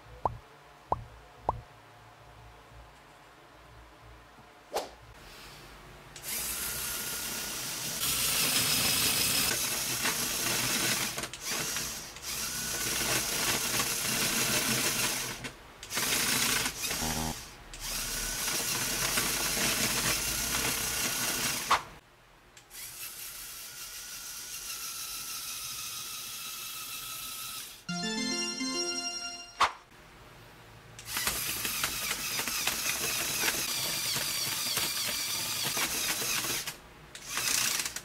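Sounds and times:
toy motor whirring and clattering: 6.2s - 21.8s, 22.6s - 27.9s, 31.0s - 38.0s.

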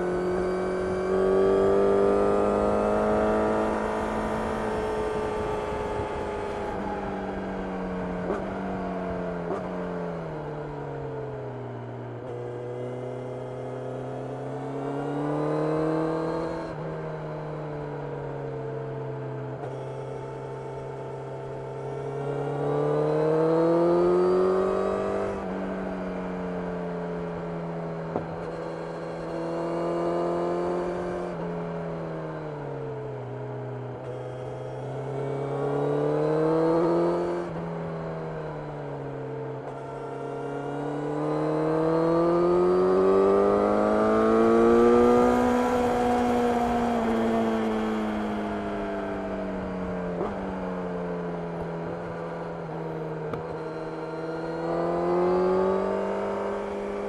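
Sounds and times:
motorcycle engine revving: 0.0s - 6.8s, 20.5s - 26.4s, 34.0s - 37.7s, 39.6s - 57.0s.

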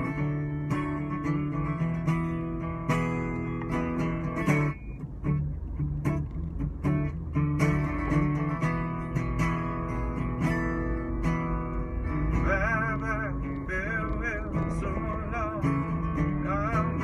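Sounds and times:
acoustic guitar strumming: 0.0s - 17.0s
man singing with vibrato: 12.2s - 17.0s.

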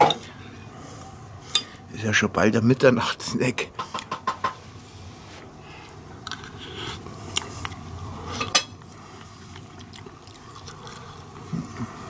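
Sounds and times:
person chewing: 6.2s - 11.9s.

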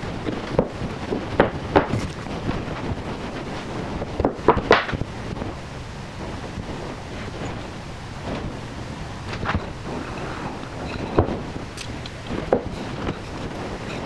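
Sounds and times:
steady background hiss: 0.0s - 14.0s
wooden strips knocking and clattering: 0.3s - 2.9s, 4.1s - 5.1s, 10.8s - 14.0s.

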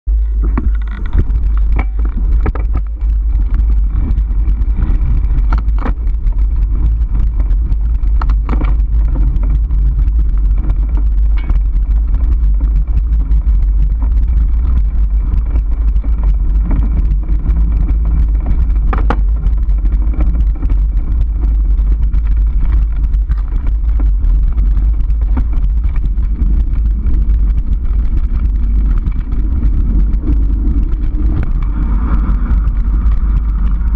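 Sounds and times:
vibration rumble: 0.0s - 33.9s
wind buffeting on camera: 0.1s - 33.9s
bike knocks and rattles: 0.2s - 33.9s.

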